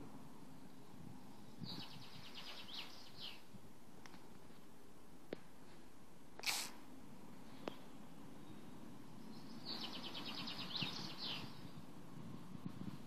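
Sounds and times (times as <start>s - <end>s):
faint outdoor hiss: 0.0s - 13.0s
songbird trilling: 1.6s - 3.4s, 9.2s - 11.7s.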